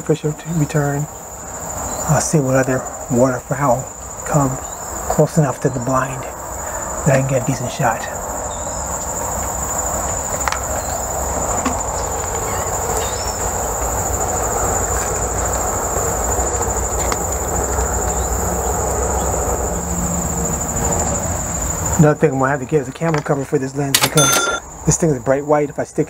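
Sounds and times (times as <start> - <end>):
insects singing: 0.0 - 26.0.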